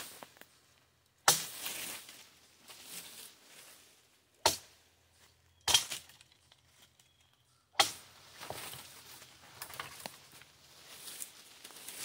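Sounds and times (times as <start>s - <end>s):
rustling leaves and brush: 0.0s - 4.3s, 5.0s - 12.0s
sword chopping branches: 1.2s - 2.0s, 4.4s - 4.7s, 5.7s - 6.2s, 7.8s - 8.1s.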